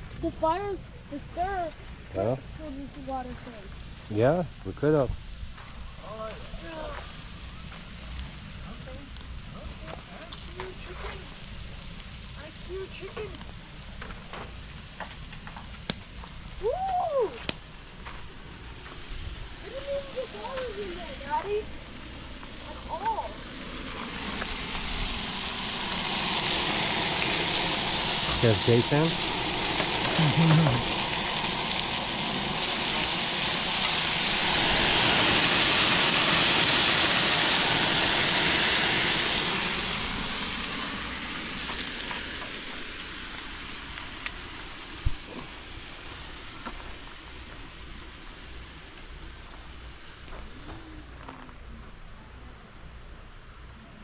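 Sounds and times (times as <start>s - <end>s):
steaks sizzling on a grill: 0.0s - 50.6s
campfire crackling: 0.0s - 54.0s
voice: 0.2s - 5.1s, 6.0s - 7.1s, 8.7s - 11.3s, 12.4s - 13.4s, 19.6s - 21.7s, 22.7s - 23.4s, 28.3s - 29.2s, 30.1s - 31.0s.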